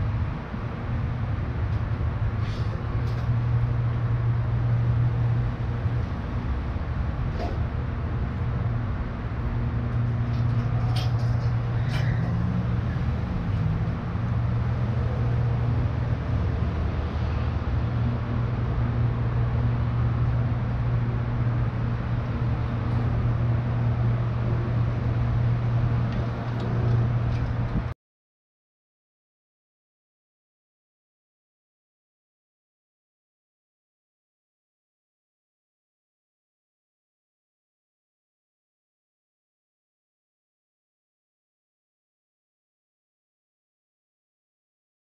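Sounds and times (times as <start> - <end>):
electric streetcar rolling on track: 0.0 - 27.9.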